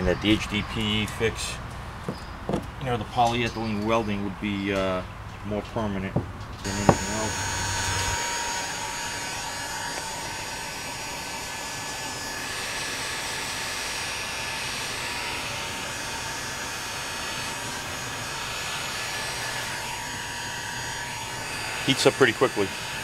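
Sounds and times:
heat gun blowing air: 0:06.7 - 0:23.0.

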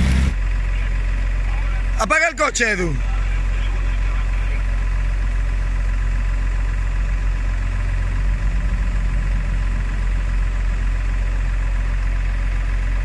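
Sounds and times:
engine idling low rumble: 0:00.0 - 0:13.0.

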